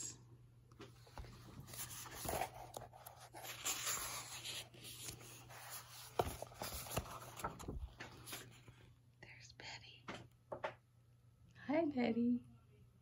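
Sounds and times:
book pages rustling: 0.7s - 8.8s.

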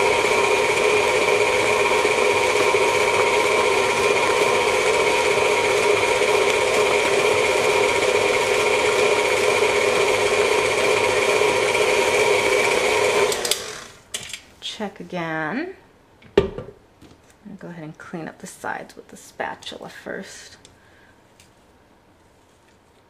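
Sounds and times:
stand mixer motor whining: 0.0s - 14.0s.

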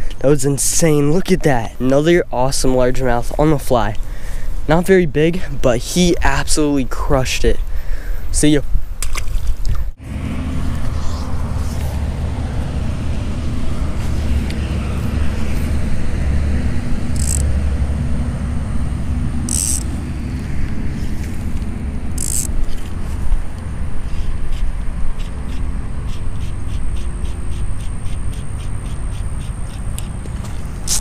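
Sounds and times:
low outdoor rumble: 0.0s - 31.0s
fishing line hissing: 10.5s - 16.1s, 17.1s - 17.6s, 19.0s - 20.0s, 22.2s - 22.9s, 26.1s - 31.0s.

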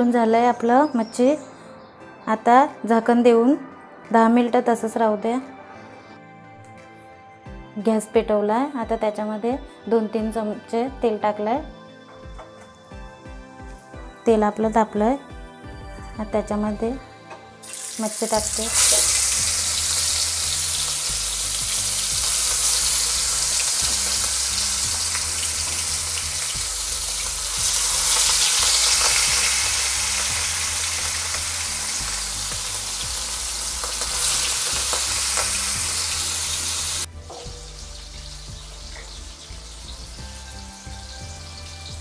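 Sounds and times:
fish sizzling in hot oil: 17.6s - 42.0s.

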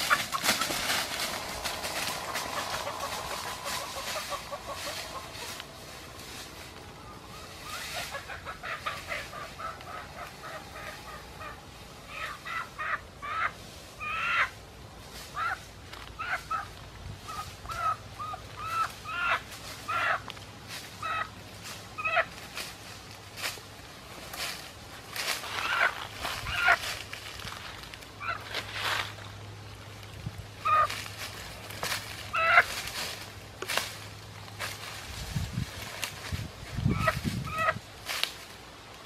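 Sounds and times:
chicken squawking: 0.0s - 6.2s, 7.0s - 14.6s, 15.3s - 20.2s, 21.0s - 21.3s, 25.5s - 26.9s, 28.2s - 28.5s, 30.6s - 31.0s, 32.3s - 32.8s, 36.8s - 37.8s.

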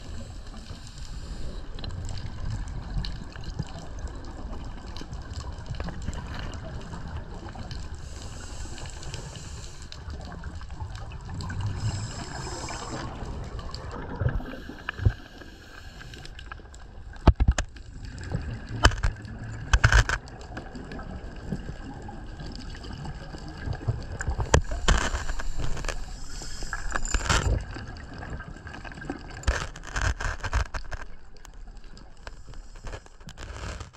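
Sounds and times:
steady underwater hiss: 0.0s - 5.2s, 5.8s - 19.8s, 22.7s - 28.4s, 32.0s - 33.7s
gurgling exhaled bubbles: 0.0s - 33.9s
sharp clicks and knocks: 17.2s - 17.7s, 18.8s - 20.2s.

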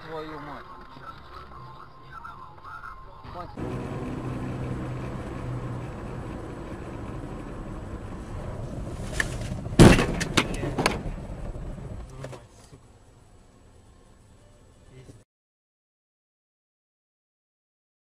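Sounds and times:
car engine and road noise: 0.0s - 15.3s
vehicle collision crash: 8.8s - 12.0s
sharp knocks and bangs: 9.1s - 11.3s.

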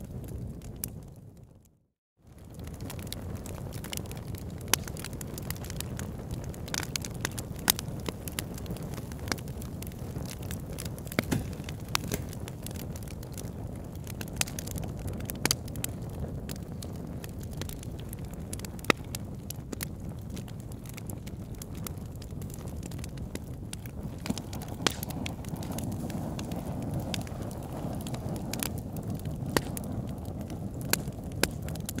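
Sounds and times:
wood fire crackling: 0.0s - 32.0s.

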